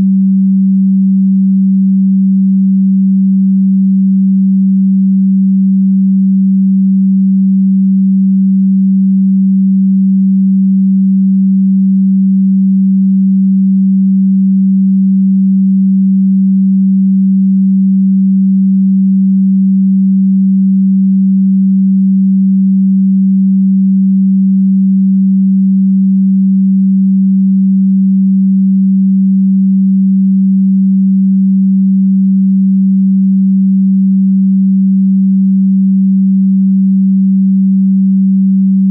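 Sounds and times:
low electronic tone: 0.0 - 38.9.

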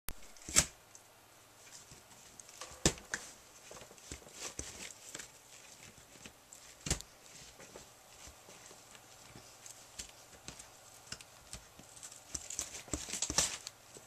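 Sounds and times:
puppy chewing cardboard: 3.6 - 14.0.

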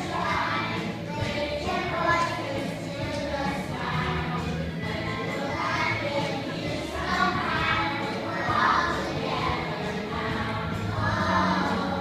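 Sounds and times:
children singing together: 0.0 - 12.0.

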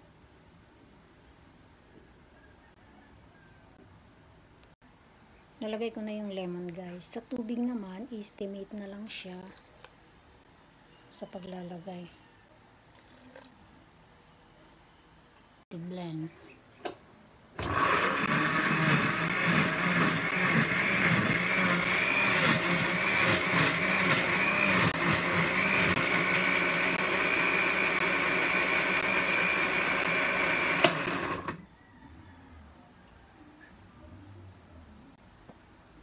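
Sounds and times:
blender whirring: 17.6 - 31.6
blender switch click: 30.8 - 31.1.

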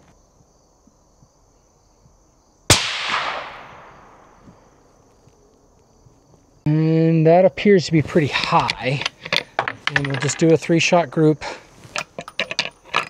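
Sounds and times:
suppressed rifle shot: 2.7 - 4.6.

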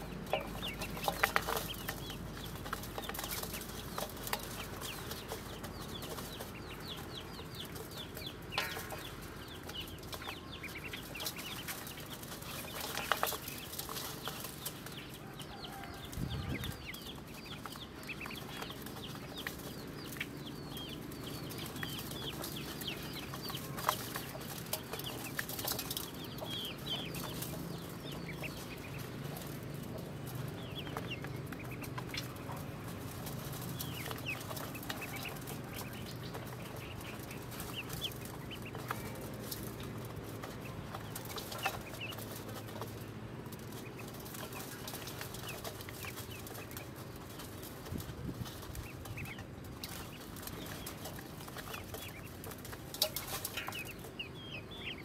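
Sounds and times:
ducklings peeping: 0.0 - 55.0.

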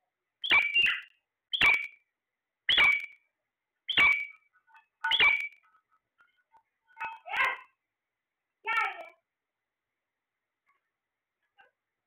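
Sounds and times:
parakeets giving harsh calls: 0.5 - 1.9, 2.7 - 3.1, 3.9 - 4.4.

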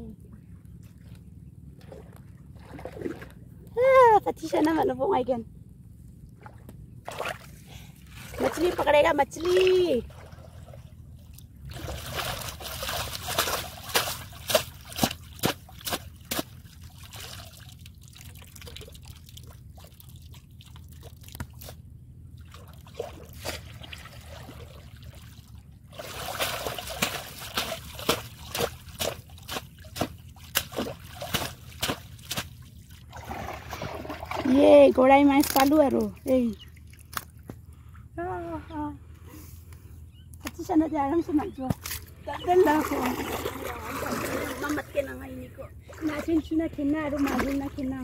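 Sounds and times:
muddy water splashing: 0.4 - 5.3, 6.3 - 38.8, 40.4 - 48.0
water trickling and dripping: 16.6 - 21.8.

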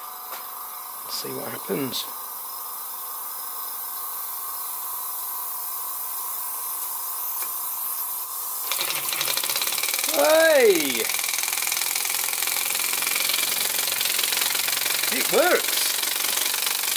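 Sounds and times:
small engine clattering: 8.6 - 16.9.

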